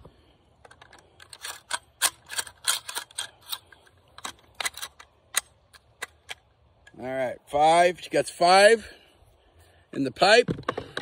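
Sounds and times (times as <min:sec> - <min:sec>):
metallic clicks of shotgun shells loading: 0:00.6 - 0:07.0.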